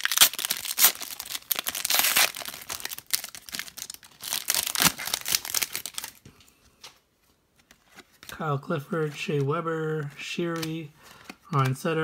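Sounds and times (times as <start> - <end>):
foil wrapper crinkling and tearing: 0.0 - 6.2.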